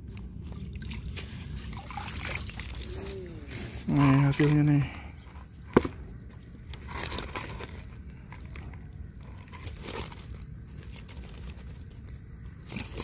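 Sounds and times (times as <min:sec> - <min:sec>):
mesh net rustling in water: 0:00.4 - 0:03.1.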